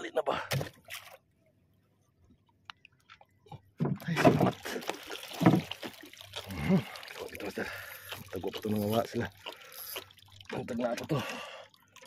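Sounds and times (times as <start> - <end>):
handling and knocking in a boat: 2.3 - 4.6, 5.4 - 5.9.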